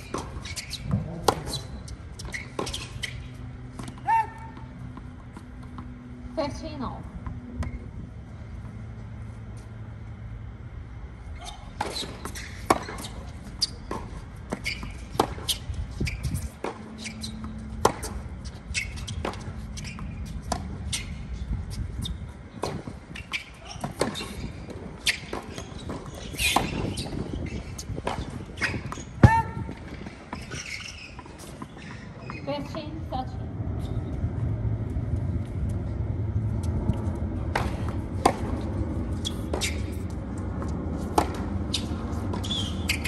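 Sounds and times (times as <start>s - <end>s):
tennis ball bounces: 0.0s - 6.1s, 16.4s - 21.0s, 36.5s - 43.0s.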